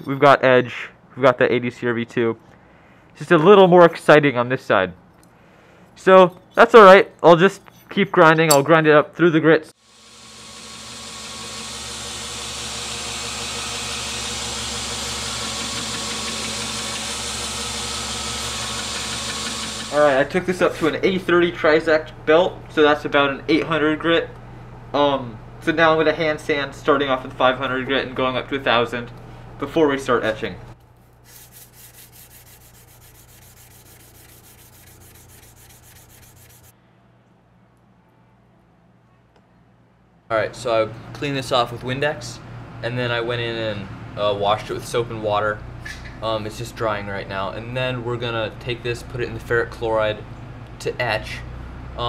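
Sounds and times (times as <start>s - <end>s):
belt grinder motor humming: 9.8s - 20.2s, 31.8s - 36.7s
knife blade grinding hiss: 31.2s - 36.7s.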